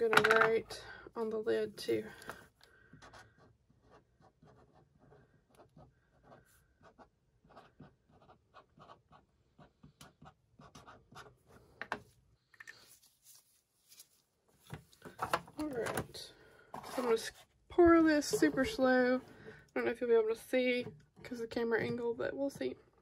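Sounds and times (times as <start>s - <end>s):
marker scratching on plastic: 3.0s - 11.5s.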